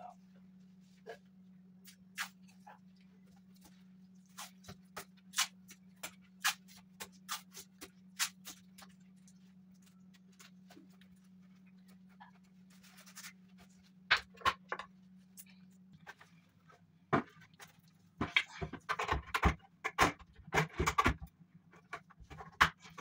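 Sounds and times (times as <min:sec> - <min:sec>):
plastic rustle: 0:08.6 - 0:14.0.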